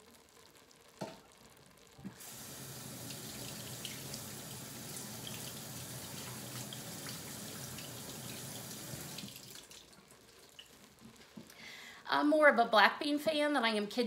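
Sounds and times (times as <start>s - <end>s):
tap water running: 2.0s - 11.1s.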